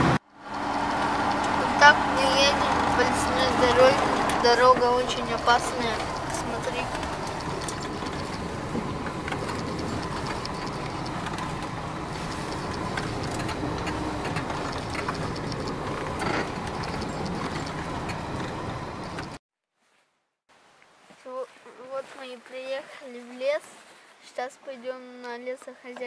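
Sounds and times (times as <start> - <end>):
engine and road noise: 0.0 - 19.4
knocks and rattles from bumps: 0.0 - 19.4.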